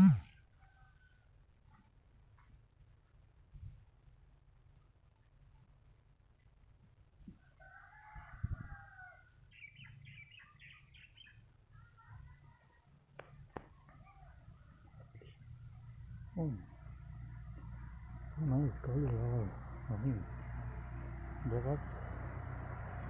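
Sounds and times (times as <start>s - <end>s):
rooster crowing: 7.4s - 9.4s
faint low rumble: 11.6s - 23.0s.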